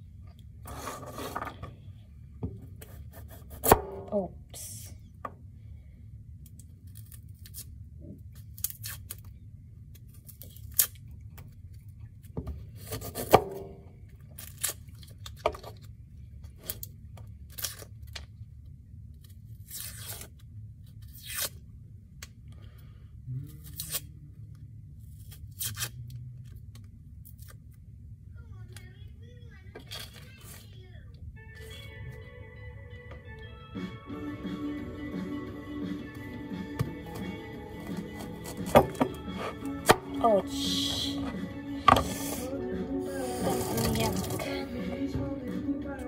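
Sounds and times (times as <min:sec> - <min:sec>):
low steady hum: 0:00.0 - 0:46.0
knife scraping onion skin: 0:02.8 - 0:03.8, 0:06.8 - 0:07.8, 0:08.4 - 0:09.3, 0:12.8 - 0:13.4, 0:14.4 - 0:15.1, 0:19.5 - 0:20.4, 0:21.0 - 0:21.6, 0:23.6 - 0:24.1, 0:25.1 - 0:26.1, 0:37.8 - 0:40.0.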